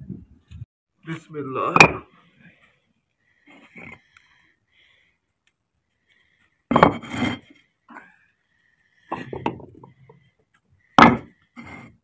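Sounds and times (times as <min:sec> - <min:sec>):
bricks knocking on concrete: 0:06.7 - 0:07.2, 0:09.1 - 0:09.9, 0:11.0 - 0:11.3
bricks scraping on concrete: 0:06.7 - 0:07.6.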